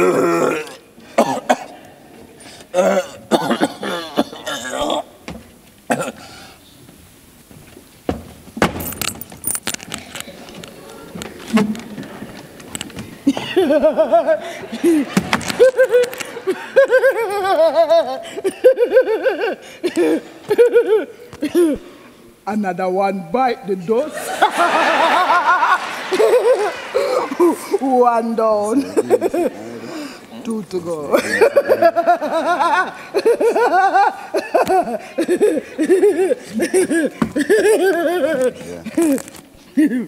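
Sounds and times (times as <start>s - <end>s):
door banging shut: 8.1s - 9.4s
woman laughing: 13.2s - 21.8s, 24.1s - 29.8s, 31.1s - 40.0s.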